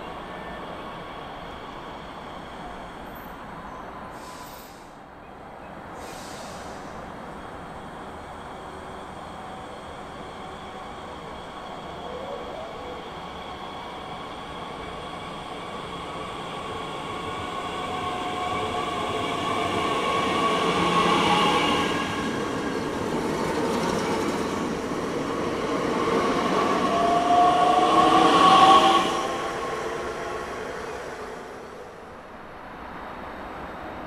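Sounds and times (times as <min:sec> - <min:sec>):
train wheels on rails: 0:05.9 - 0:32.3.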